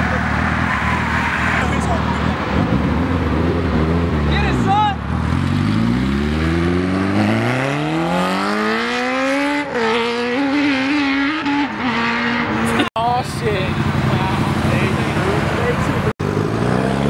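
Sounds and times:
motorcycle engine accelerating: 0:05.1 - 0:17.0.

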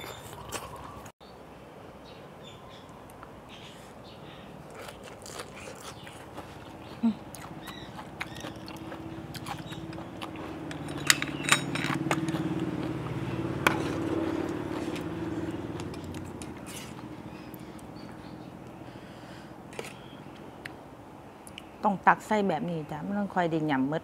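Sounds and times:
person chewing with lip smacks: 0:00.0 - 0:01.1, 0:04.7 - 0:11.0.

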